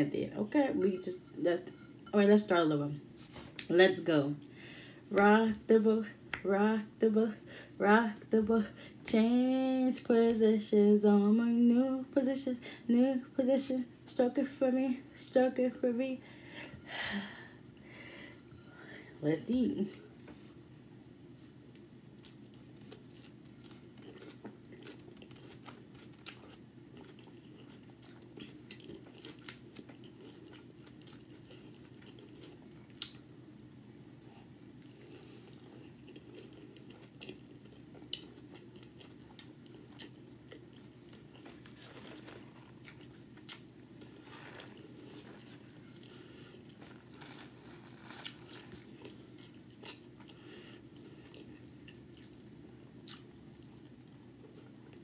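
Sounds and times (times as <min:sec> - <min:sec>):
steady low hum: 0:00.0 - 0:55.0
person chewing: 0:21.7 - 0:52.4, 0:53.0 - 0:55.0.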